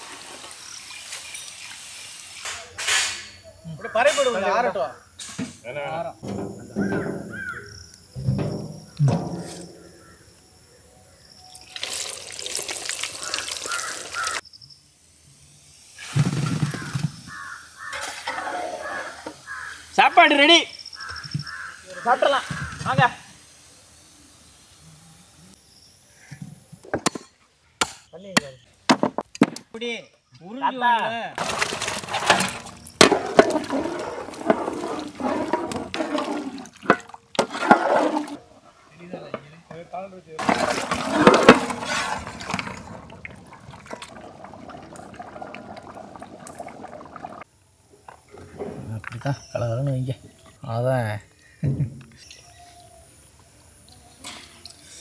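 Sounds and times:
hot oil sizzling and dripping: 0.0s - 2.6s, 11.5s - 26.0s
crows cawing: 6.9s - 7.8s, 13.1s - 14.4s, 16.6s - 20.0s, 21.0s - 22.8s
gravy bubbling and splashing: 11.6s - 14.4s, 31.4s - 38.4s, 40.4s - 47.5s.

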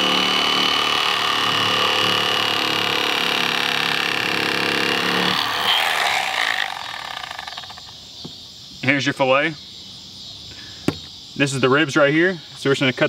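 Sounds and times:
electric fillet knife whining: 0.0s - 7.9s.

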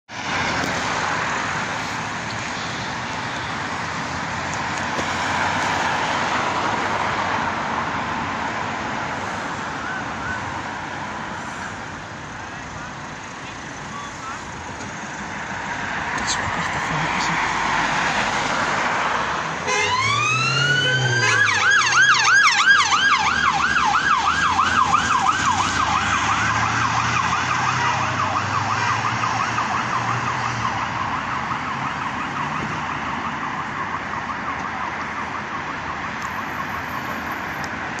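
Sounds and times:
road traffic: 0.1s - 38.0s
police siren wailing and yelping: 16.2s - 18.6s, 19.6s - 37.5s.

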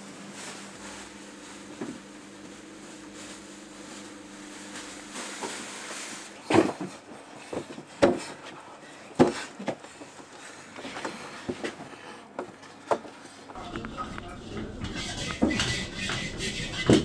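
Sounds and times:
steady low hum: 13.5s - 17.0s.

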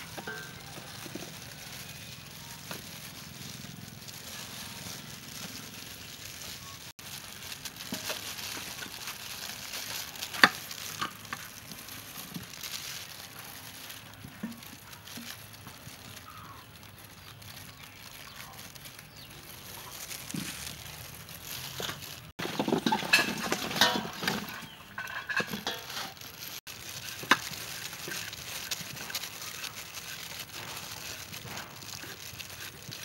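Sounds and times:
apple pieces stirred in metal bowl: 0.0s - 16.6s, 17.3s - 33.0s
apple scraped with peeler: 19.2s - 33.0s.

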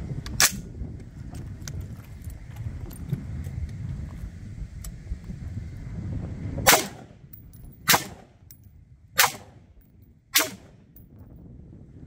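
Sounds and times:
carbine gunshots: 6.7s - 7.2s, 7.9s - 8.4s, 9.2s - 9.7s, 10.4s - 10.9s.

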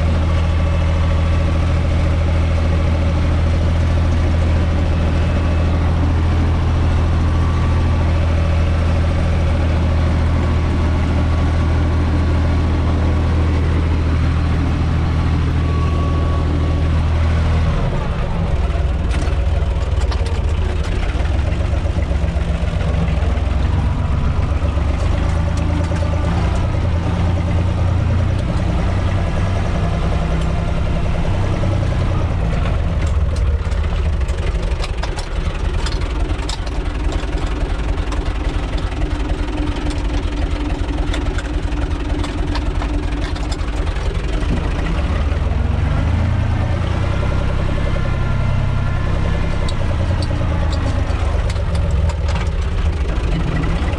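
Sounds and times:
diesel engine running: 0.0s - 53.9s
clicks and rattles: 18.5s - 27.6s, 32.2s - 45.5s, 49.4s - 53.9s.

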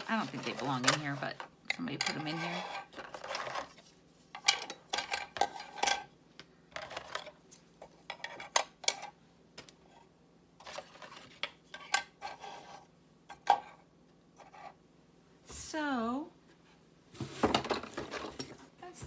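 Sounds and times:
plastic cookie cutters clattering: 0.0s - 6.1s, 6.7s - 7.4s.

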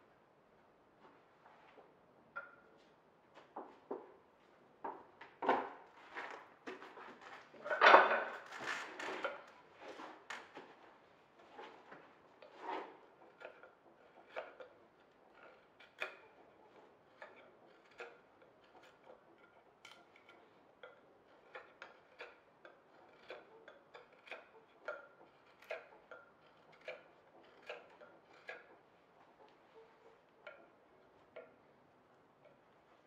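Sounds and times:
knife paring wood: 11.4s - 33.0s.

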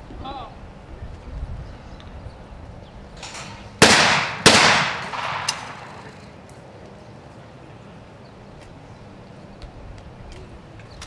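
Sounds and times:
shotgun shots echoing: 3.8s - 6.0s
sharp click: 5.0s - 6.1s.

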